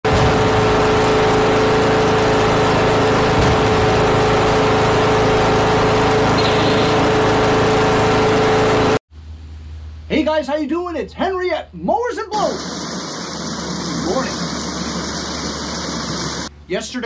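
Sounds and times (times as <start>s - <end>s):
lawn tractor engine droning: 0.0s - 9.0s, 12.4s - 16.5s.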